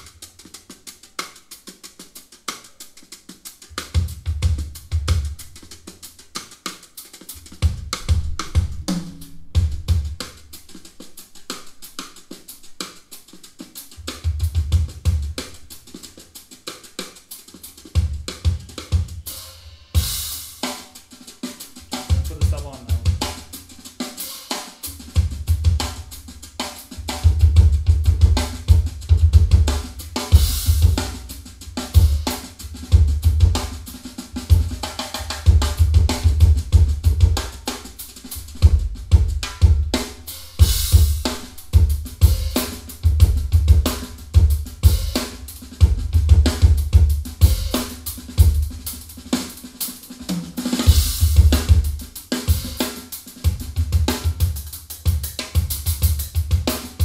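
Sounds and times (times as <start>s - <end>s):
hi-hat: 0.0s - 57.0s
snare drum: 0.0s - 57.0s.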